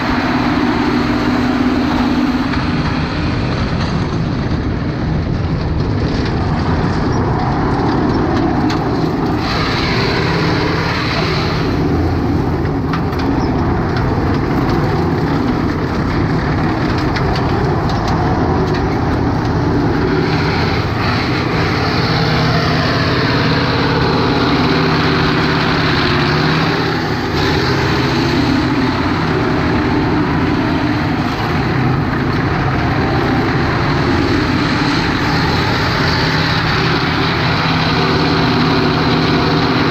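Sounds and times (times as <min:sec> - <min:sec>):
tank diesel engine running: 0:00.0 - 0:39.9
steel tracks clattering on gravel: 0:11.6 - 0:21.8.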